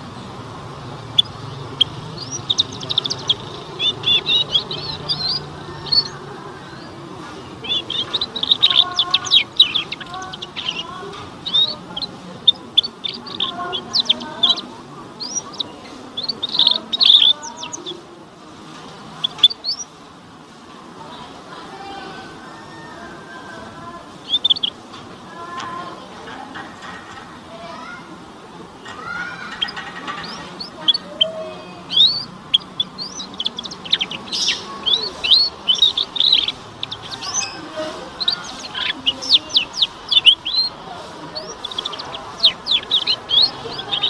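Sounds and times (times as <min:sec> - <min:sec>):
canary twittering: 0:00.0 - 0:20.0, 0:21.7 - 0:27.2, 0:28.6 - 0:44.0.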